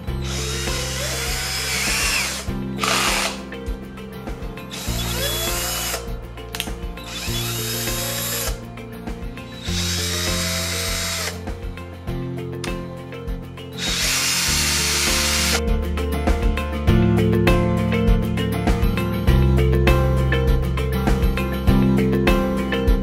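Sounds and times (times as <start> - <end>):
cordless drill motor spinning: 0.0 - 3.4, 4.7 - 6.0, 7.1 - 8.6, 9.5 - 11.4, 13.8 - 15.6.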